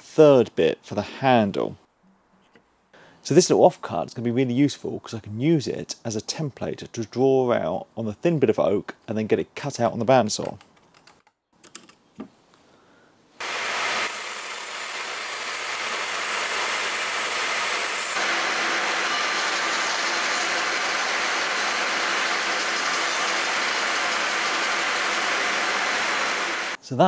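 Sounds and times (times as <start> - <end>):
bandsaw cutting wood: 13.4 - 26.8.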